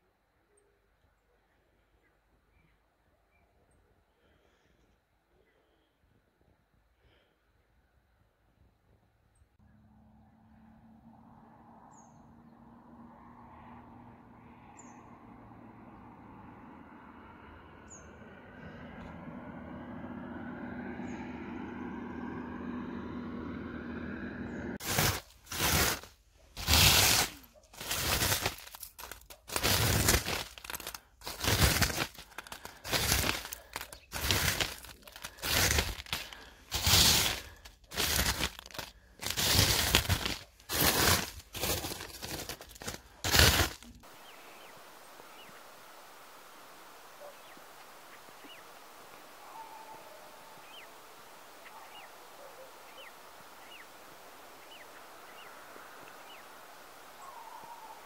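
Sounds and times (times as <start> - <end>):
hand scraping ice crust: 24.8 - 44.0.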